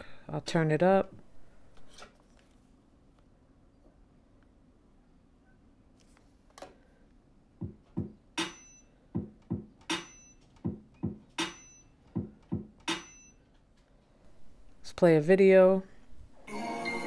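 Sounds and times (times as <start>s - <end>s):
drum beat through tv speakers: 7.6s - 8.2s, 9.2s - 11.6s, 12.2s - 13.0s.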